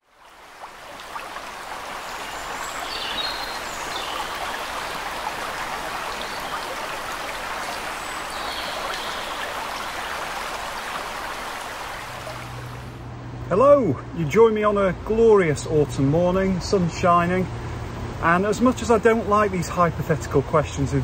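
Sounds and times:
stream water rushing: 0:00.0 - 0:13.1.

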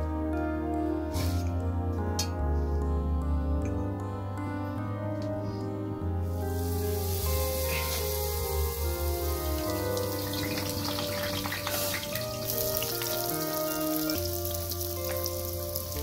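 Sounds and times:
music with held chords and bass: 0:00.0 - 0:16.0
dough frying in hot oil: 0:06.3 - 0:16.0.

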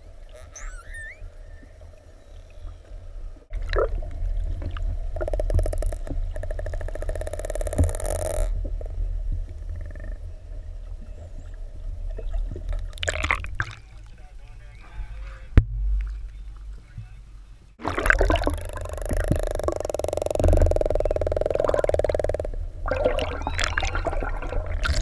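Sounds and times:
killer whale calls: 0:00.0 - 0:02.8, 0:17.8 - 0:25.0
low rumble of water: 0:00.0 - 0:25.0.

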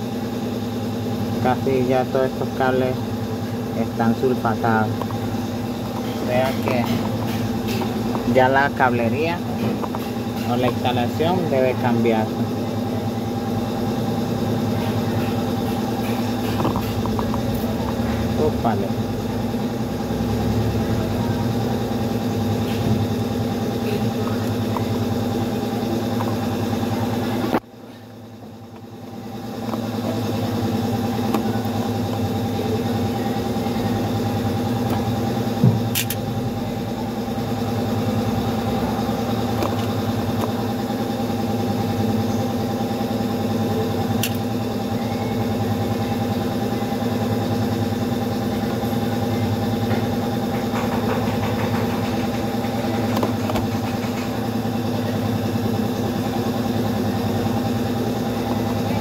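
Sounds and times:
engine idling hum: 0:00.0 - 0:59.0
sharp click: 0:35.9 - 0:36.2, 0:44.2 - 0:44.4.

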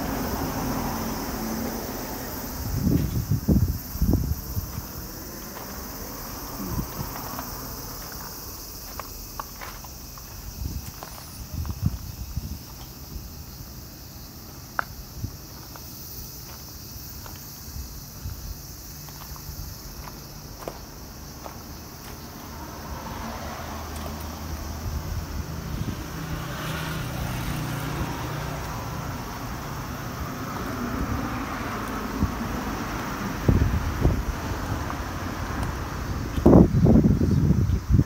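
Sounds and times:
high insect drone: 0:00.0 - 0:38.0
vehicle engine rumble: 0:00.0 - 0:38.0
footstep crunches: 0:02.9 - 0:06.0, 0:06.6 - 0:13.0, 0:14.7 - 0:22.5.

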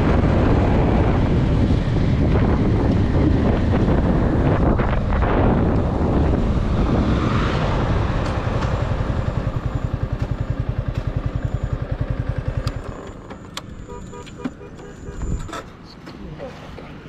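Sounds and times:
wind noise: 0:00.0 - 0:11.4, 0:14.8 - 0:15.7
motorcycle engine idling: 0:08.4 - 0:15.5.

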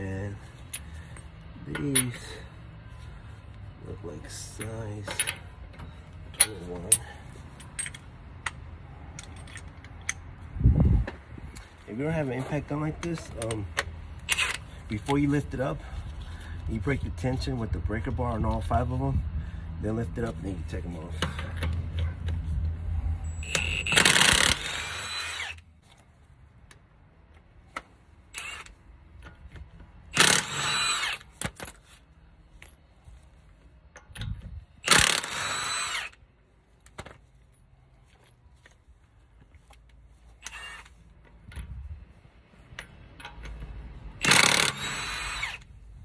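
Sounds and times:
impact wrench zipping: 0:14.2 - 0:14.7, 0:23.2 - 0:25.6, 0:28.3 - 0:28.8, 0:30.1 - 0:31.8, 0:34.2 - 0:36.2, 0:40.4 - 0:41.0, 0:44.1 - 0:45.7.

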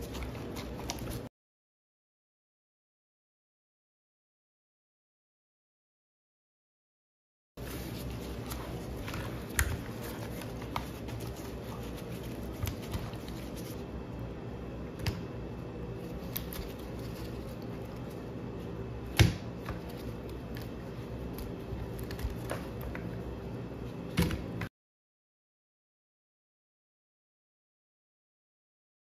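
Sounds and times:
low background hum: 0:00.0 - 0:01.3, 0:07.6 - 0:24.7
hand mixing fish in a bowl: 0:07.6 - 0:14.0.

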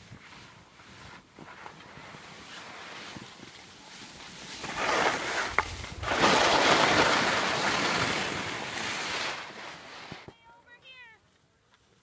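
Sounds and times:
wind gusting on microphone: 0:05.1 - 0:08.8.

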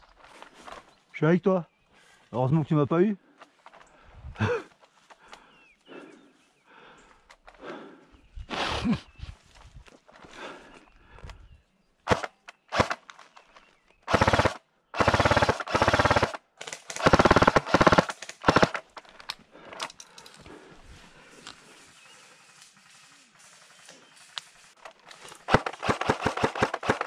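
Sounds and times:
airsoft gun firing full auto: 0:12.1 - 0:13.0, 0:14.1 - 0:18.9, 0:25.4 - 0:27.0.

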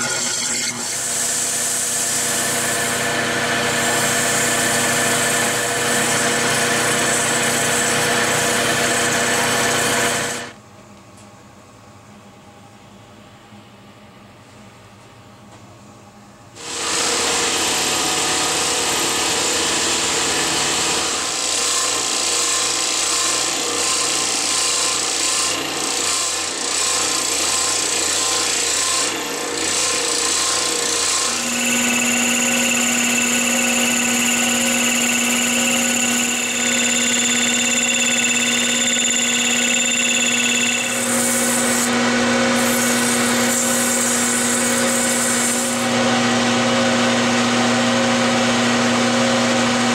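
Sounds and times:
lathe motor hum: 0:00.0 - 0:10.5, 0:28.4 - 0:49.9
scroll saw cutting wood: 0:00.0 - 0:10.5, 0:16.6 - 0:47.2.

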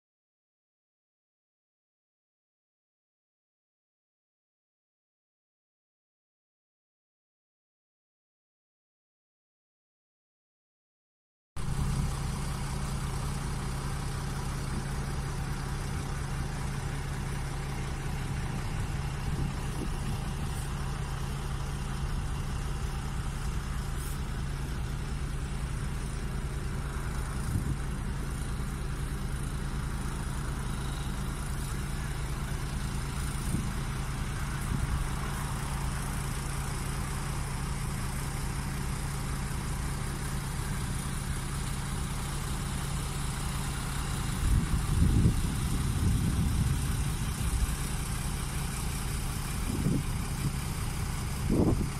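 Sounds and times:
construction machine engine droning: 0:11.6 - 0:51.9.

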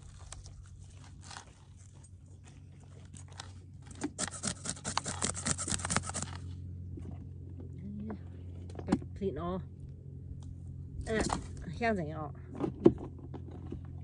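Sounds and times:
knife scraping fish scales: 0:04.2 - 0:06.5.

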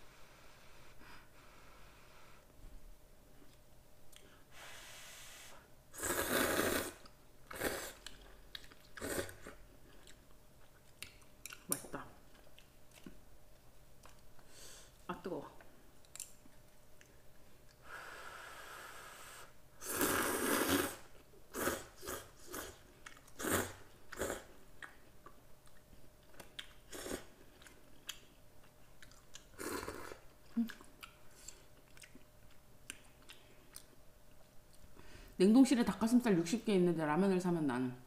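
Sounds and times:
chewing noises: 0:08.0 - 0:13.2, 0:24.1 - 0:34.9.

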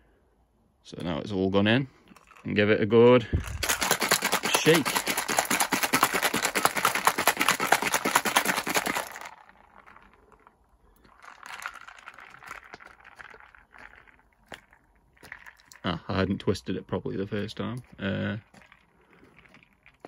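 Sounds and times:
ice cubes rattling in shaken cup: 0:03.4 - 0:15.8, 0:18.4 - 0:20.0.

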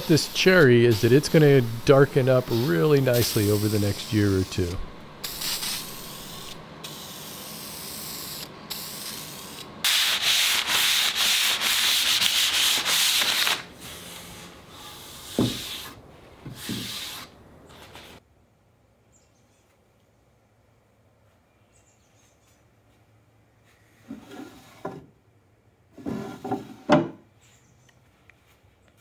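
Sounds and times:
hand rubbing wood surface: 0:00.0 - 0:05.1, 0:09.9 - 0:18.2
aerosol can hissing: 0:00.0 - 0:13.6.

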